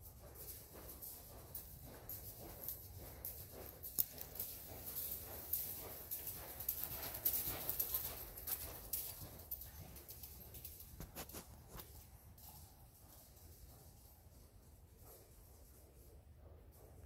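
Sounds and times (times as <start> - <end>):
muffled horse hoofbeats: 0.0 - 12.1.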